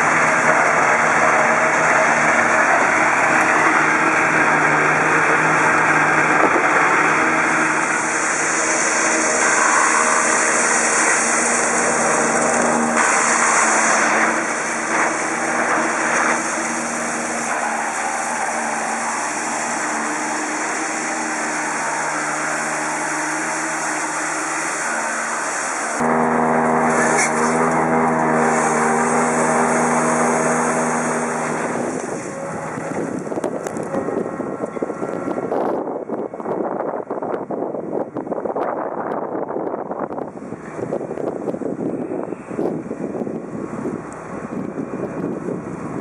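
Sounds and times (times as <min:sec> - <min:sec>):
rushing hiss of blown chips: 0:00.0 - 0:32.8
tractor engine drone: 0:00.0 - 0:46.0.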